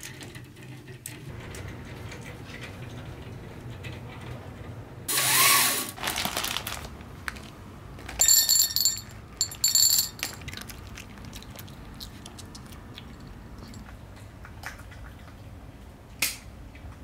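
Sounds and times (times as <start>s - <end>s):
kibble rattling into a bowl: 8.1s - 10.9s.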